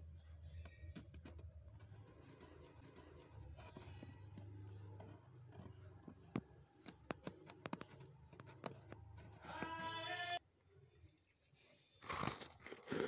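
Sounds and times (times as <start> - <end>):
fingers scratching frost: 1.0 - 5.0.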